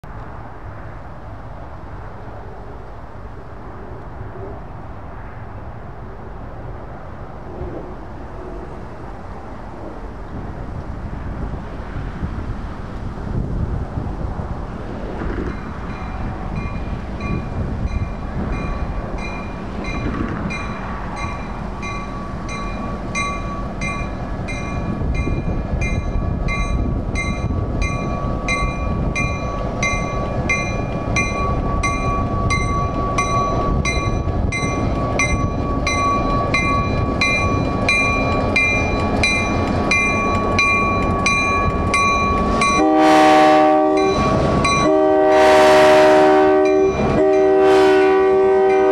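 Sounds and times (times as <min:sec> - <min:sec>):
diesel locomotive engine rumble: 0:00.0 - 0:48.9
locomotive bell ringing: 0:15.5 - 0:43.2, 0:43.8 - 0:45.3, 0:46.6 - 0:47.8
locomotive horn blast: 0:42.7 - 0:48.9.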